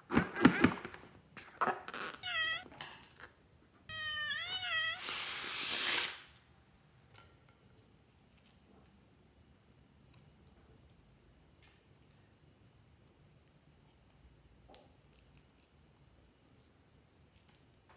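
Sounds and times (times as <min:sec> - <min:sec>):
air rushing from balloon: 0:04.9 - 0:06.3.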